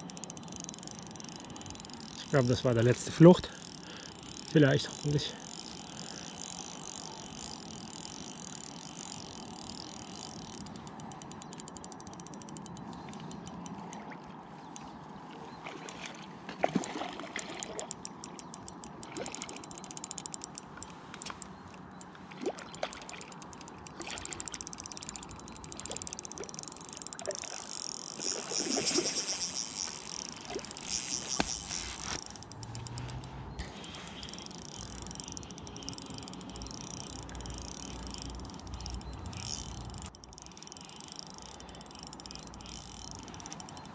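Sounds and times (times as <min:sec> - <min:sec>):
fishing tackle clicks and knocks: 0:00.0 - 0:43.9
water splashing and trickling: 0:00.0 - 0:43.9.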